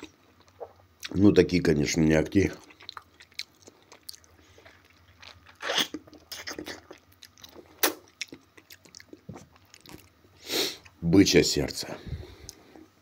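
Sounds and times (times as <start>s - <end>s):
person biting and chewing tomato: 2.5s - 11.0s.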